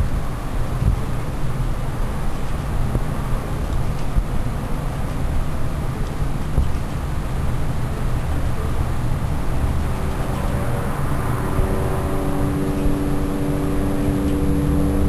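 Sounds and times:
low engine-like rumble: 0:00.0 - 0:15.0
steady hum: 0:00.0 - 0:15.0.

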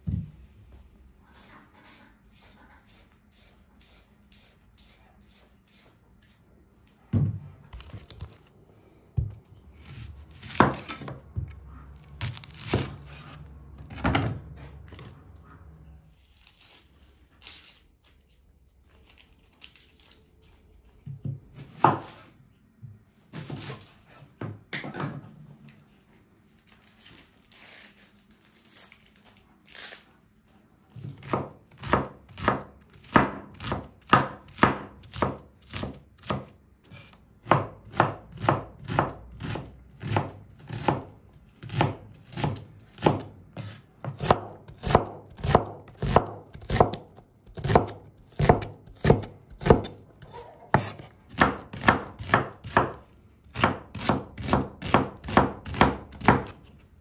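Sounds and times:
knife chopping on wooden board: 0:09.9 - 0:11.6, 0:31.2 - 0:36.5, 0:37.4 - 0:56.6.

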